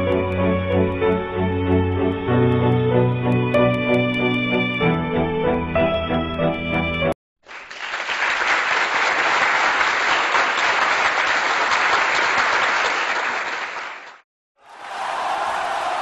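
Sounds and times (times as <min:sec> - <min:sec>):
background music: 0:00.0 - 0:07.2
crowd applause: 0:07.4 - 0:16.0.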